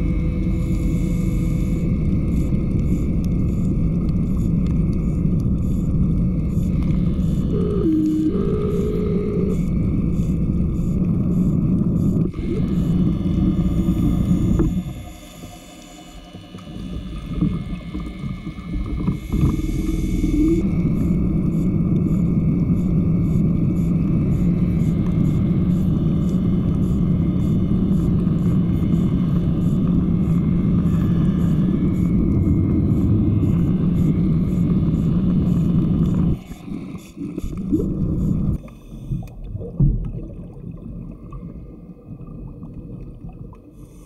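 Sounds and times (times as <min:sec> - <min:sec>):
irregular underwater sounds: 0:00.0 - 0:44.0
underwater scooter humming: 0:00.0 - 0:44.0.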